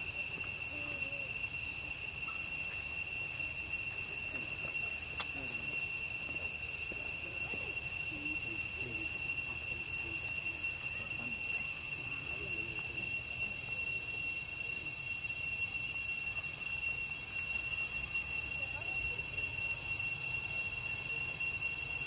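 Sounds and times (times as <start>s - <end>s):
steady high-pitched drone: 0.0s - 22.0s.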